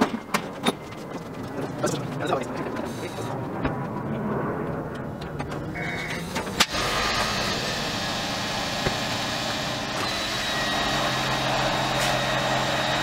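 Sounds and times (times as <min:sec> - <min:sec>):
car engine idling: 0:05.0 - 0:13.0.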